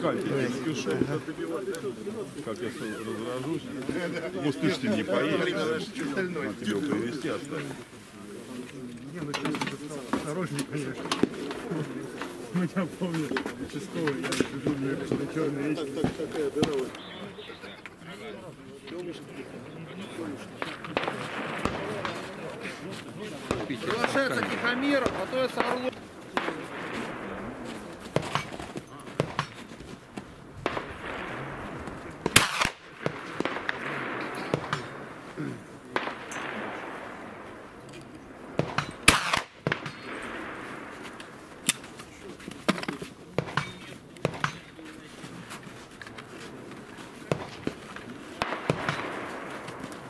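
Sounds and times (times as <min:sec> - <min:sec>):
faint sharp cracks: 0:20.1 - 0:50.0
loud gunshot with echo: 0:30.7 - 0:35.2, 0:38.6 - 0:40.8.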